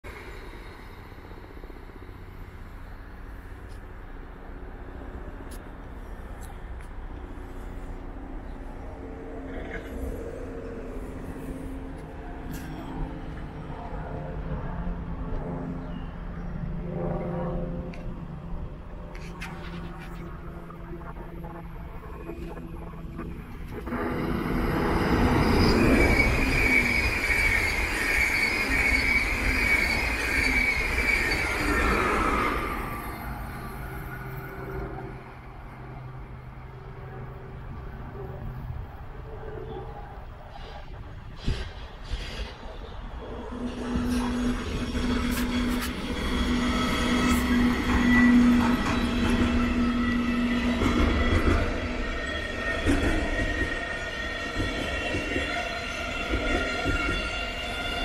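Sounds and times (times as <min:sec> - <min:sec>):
electric locomotive hum: 0:00.0 - 0:58.0
train wheels rumbling on rails: 0:00.1 - 0:39.2, 0:40.0 - 0:58.0
high wheel squeal: 0:23.8 - 0:34.9, 0:43.2 - 0:58.0.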